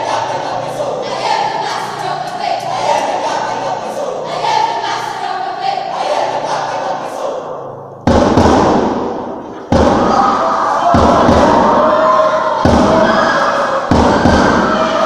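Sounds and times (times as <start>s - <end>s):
young voices speaking in unison: 0.0s - 7.4s
loud thump: 8.0s - 10.2s, 10.9s - 11.8s, 12.6s - 13.1s, 13.9s - 14.7s.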